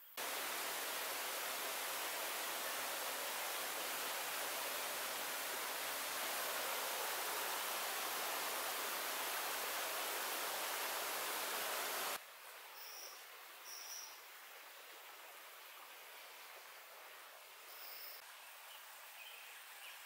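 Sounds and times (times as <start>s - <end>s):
stream flowing over stones: 0.2s - 12.7s.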